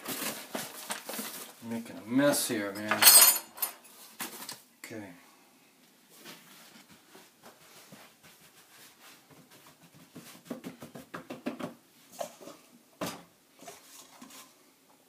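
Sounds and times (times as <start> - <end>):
hands slapping dough: 8.0 - 11.8.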